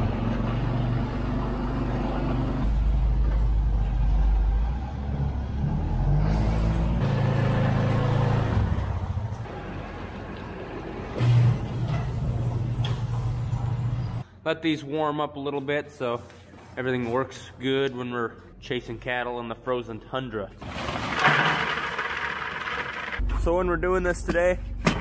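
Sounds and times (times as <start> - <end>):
four-wheeler engine: 0.0 - 11.2, 20.7 - 23.2.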